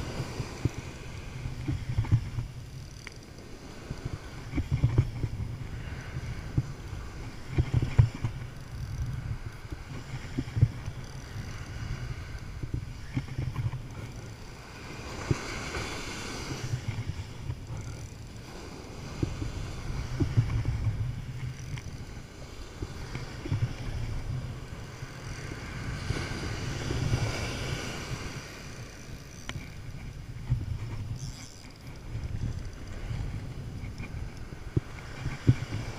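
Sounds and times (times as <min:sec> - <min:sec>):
surf breaking on a beach: 0:00.0 - 0:02.6, 0:09.2 - 0:29.1
wind buffeting microphone: 0:00.0 - 0:35.9
faint clicks: 0:01.4 - 0:14.6, 0:19.1 - 0:22.1, 0:28.8 - 0:35.9.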